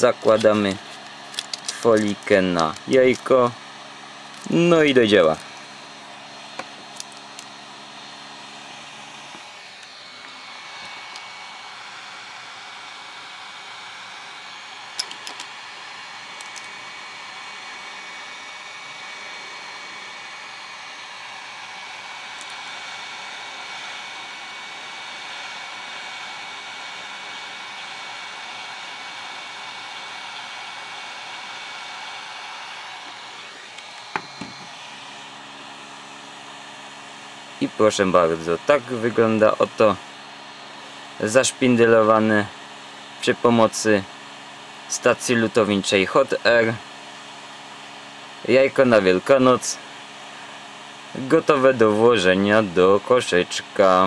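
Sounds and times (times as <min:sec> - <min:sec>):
hot air blower rushing: 0:00.0 - 0:54.0
thin steady whine: 0:00.0 - 0:54.0.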